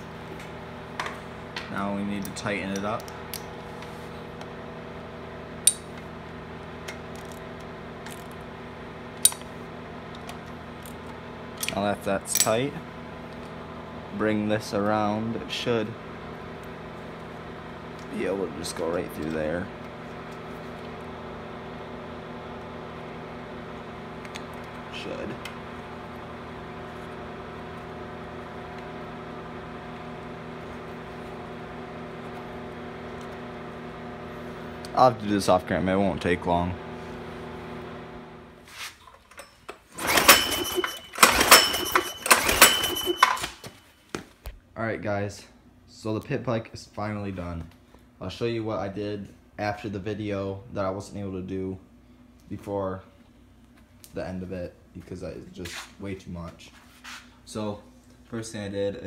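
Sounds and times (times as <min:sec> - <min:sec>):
steady mechanical hum: 0:00.0 - 0:59.0
metal tool clinking: 0:39.2 - 0:43.7.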